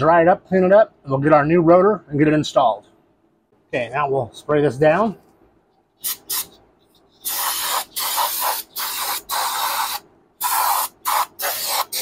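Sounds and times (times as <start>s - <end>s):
aerosol spray hissing bursts: 6.0s - 6.6s, 7.2s - 12.0s.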